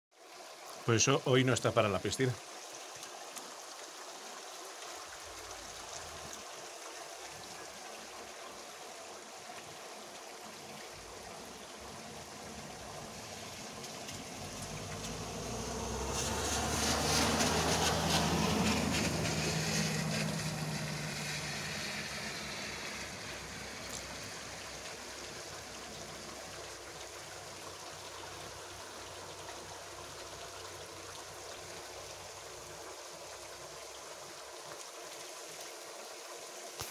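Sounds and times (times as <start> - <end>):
running water: 0.1 - 36.9
heavy rain: 11.0 - 26.3
vehicle driving on wet road: 12.3 - 25.9.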